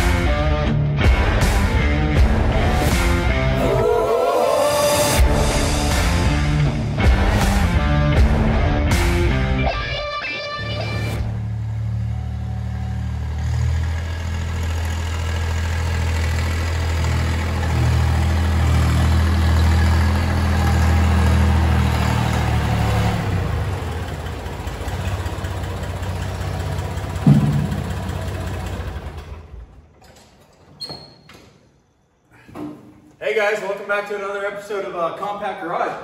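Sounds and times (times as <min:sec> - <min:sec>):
tractor engine running: 0:11.2 - 0:30.6
sharp thump: 0:27.2 - 0:28.2.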